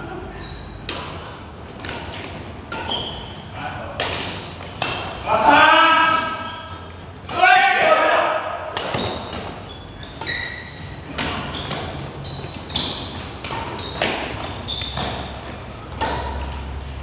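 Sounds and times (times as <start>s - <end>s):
rackets hitting shuttlecock: 0.7s - 5.3s, 8.6s - 16.8s.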